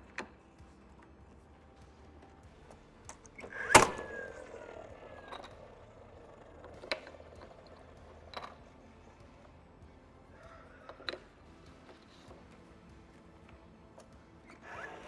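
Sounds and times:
motor whine resetting: 3.3 - 7.9, 14.4 - 15.0
nail gun firing: 3.4 - 4.4.

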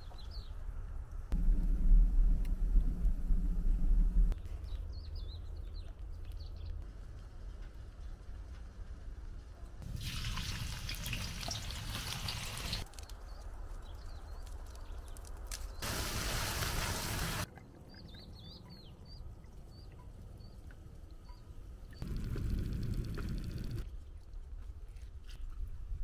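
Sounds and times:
liquid pouring and trickling: 9.8 - 12.8.

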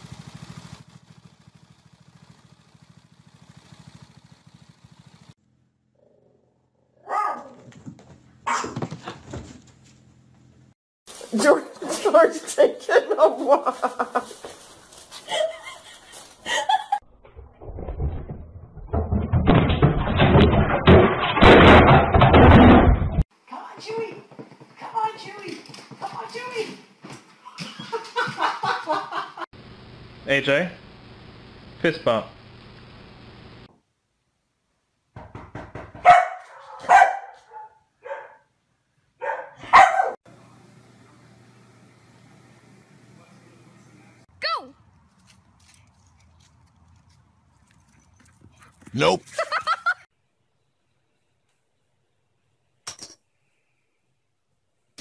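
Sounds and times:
dog barking: 7.0 - 7.7, 8.4 - 8.9, 36.0 - 38.5, 39.2 - 40.2
rapid thumps and clatter: 17.4 - 23.2, 35.2 - 36.1.

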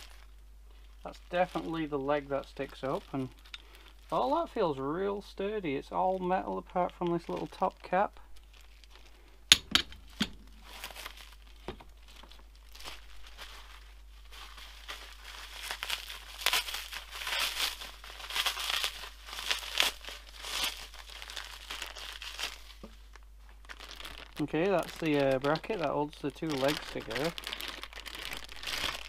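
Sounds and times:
plastic packaging crinkling: 0.0 - 29.0
metal stand leg knocking: 9.5 - 10.4.

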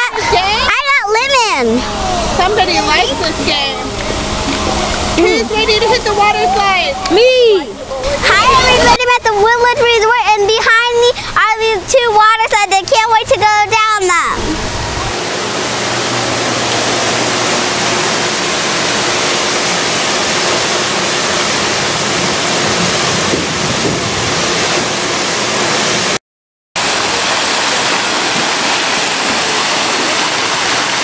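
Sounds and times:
water rushing down waterfall: 14.4 - 26.2, 26.8 - 31.0.

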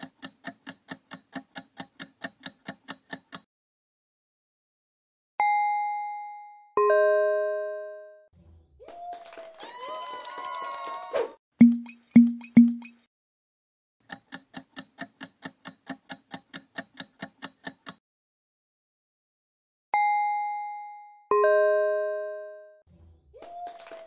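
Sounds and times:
bell-like ding: 5.4 - 8.2, 20.0 - 22.7
countdown timer ticking: 11.6 - 13.0.

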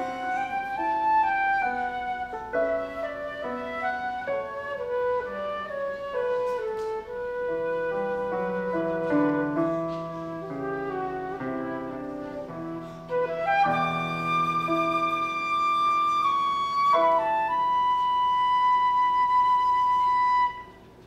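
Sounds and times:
lower accompanying notes: 0.0 - 20.9
flute melody: 0.0 - 21.0.

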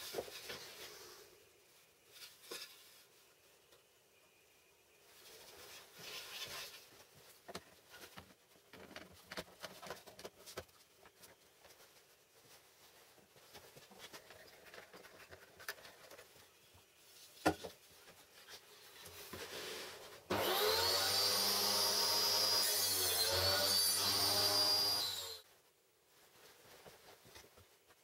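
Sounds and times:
table saw whining: 20.3 - 25.4.

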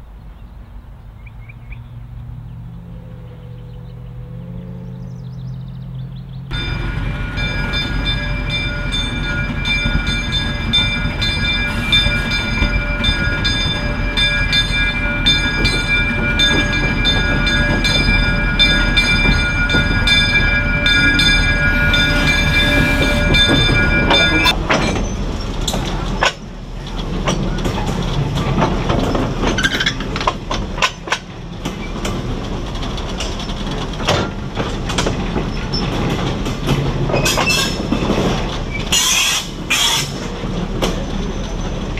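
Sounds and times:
locomotive engine rumble: 0.0 - 41.9
wheels clicking over rail joints: 6.1 - 41.9
high multi-tone whine: 6.5 - 24.6.

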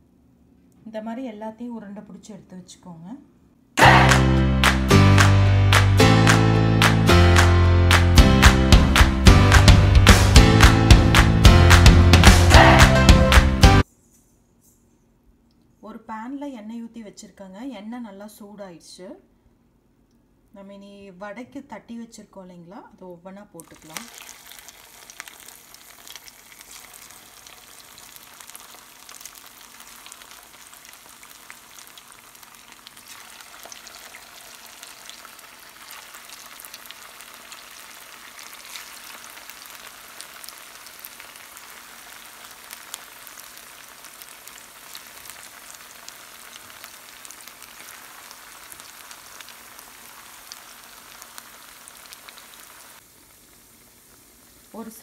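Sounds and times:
fritters deep-frying in oil: 23.6 - 55.0.

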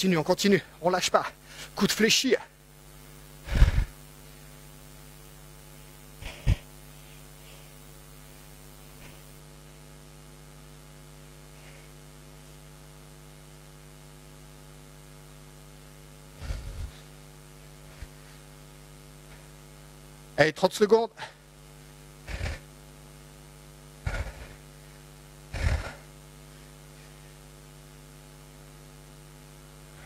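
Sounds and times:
electrical mains hum: 0.0 - 30.0
heavy breathing puffs: 3.4 - 4.6, 6.2 - 7.9, 11.5 - 12.0, 16.4 - 18.6, 22.3 - 22.7, 24.0 - 27.4.

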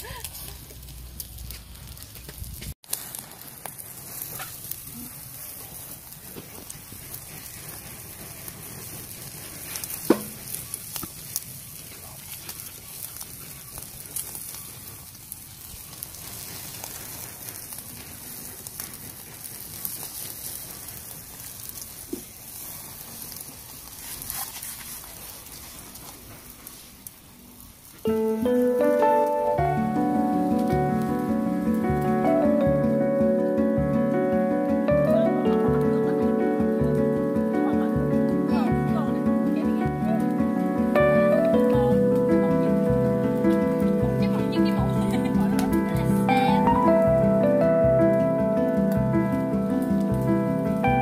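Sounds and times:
crackles and pops: 0.0 - 51.0
meat sizzling over charcoal: 0.0 - 51.0
music: 28.1 - 51.0.

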